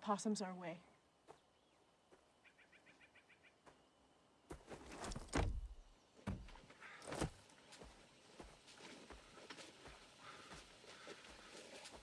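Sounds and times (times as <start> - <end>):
heavy footfalls and thuds: 5.0 - 7.4.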